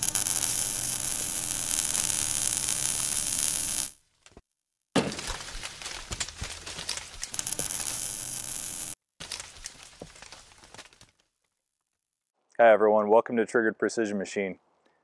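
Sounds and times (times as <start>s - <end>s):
crackling sparks: 0.0s - 4.0s, 5.2s - 11.0s
fiery hiss: 0.0s - 4.0s, 7.3s - 9.0s.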